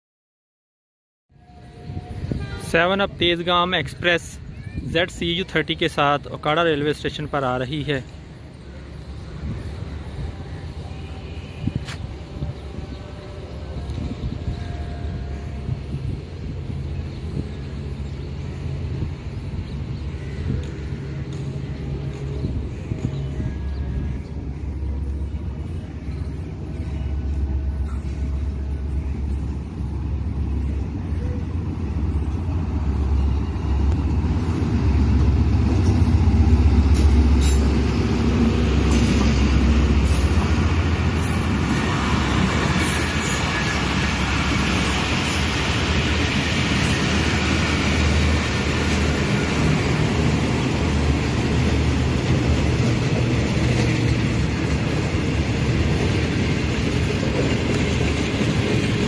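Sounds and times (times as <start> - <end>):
train coaches rolling on rails: 1.4 - 59.0
locomotive engine rumble: 8.0 - 59.0.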